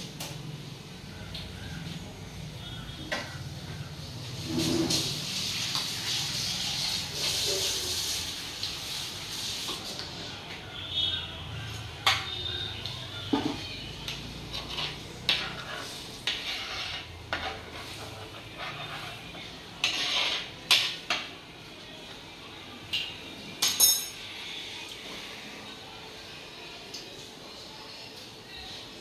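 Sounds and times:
metal spoon clinking in clay pot: 0:23.6 - 0:24.2.

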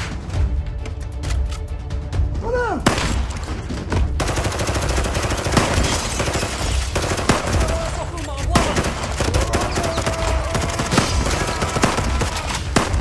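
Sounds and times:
film music score: 0:00.0 - 0:13.0
rapid gunfire: 0:02.9 - 0:13.0.

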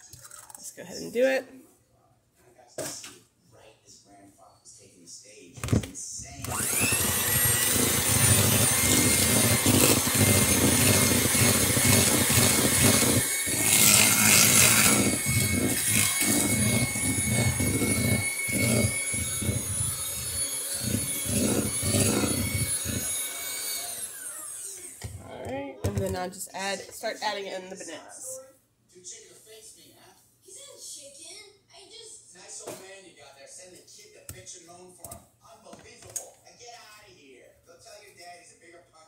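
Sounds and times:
electric hand mixer whining: 0:06.4 - 0:25.3.

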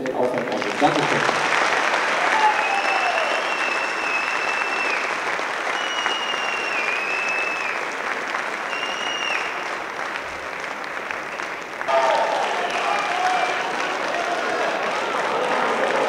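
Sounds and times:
audience applauding: 0:00.0 - 0:16.0
shrill whistles from crowd: 0:02.2 - 0:08.0, 0:08.6 - 0:09.8, 0:12.4 - 0:13.9.

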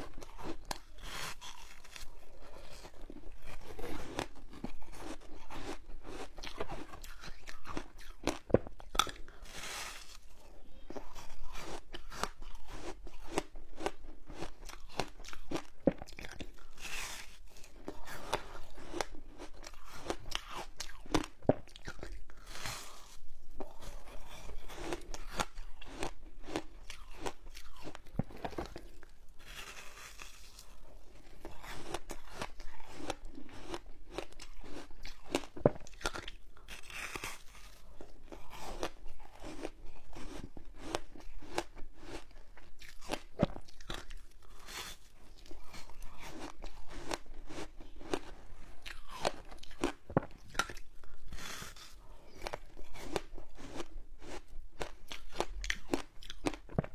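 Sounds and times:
chewing crunchy ice: 0:00.0 - 0:56.9.

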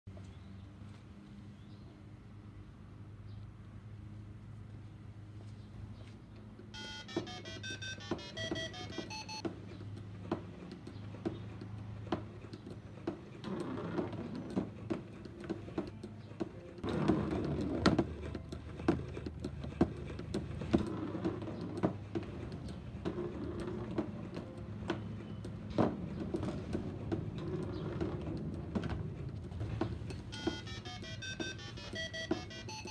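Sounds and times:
electronic beep melody: 0:06.8 - 0:09.4, 0:30.3 - 0:32.9
golf ball rolling on cardboard: 0:08.1 - 0:32.9.

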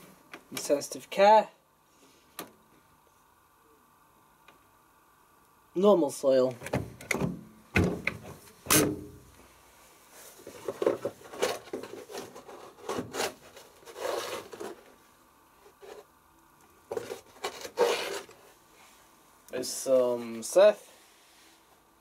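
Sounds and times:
rubbing and scraping handling noises: 0:09.8 - 0:16.2, 0:16.9 - 0:21.9.

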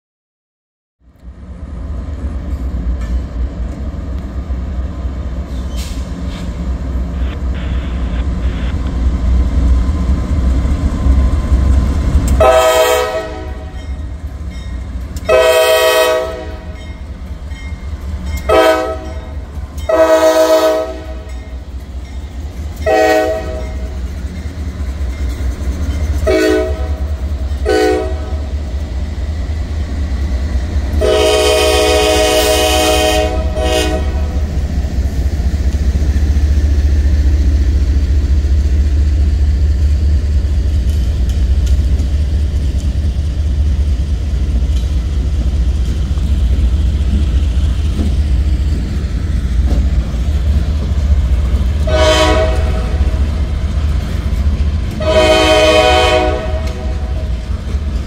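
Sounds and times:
diesel locomotives rumbling: 0:01.0 - 0:58.0
train wheels rumbling: 0:01.2 - 0:58.0
locomotive air horn blasts: 0:07.2 - 0:08.7, 0:12.4 - 0:13.8, 0:15.3 - 0:16.8, 0:18.5 - 0:19.3, 0:19.9 - 0:21.3, 0:22.8 - 0:23.8, 0:26.2 - 0:27.0, 0:27.6 - 0:28.5, 0:31.0 - 0:34.4, 0:51.8 - 0:53.2, 0:55.0 - 0:57.3.

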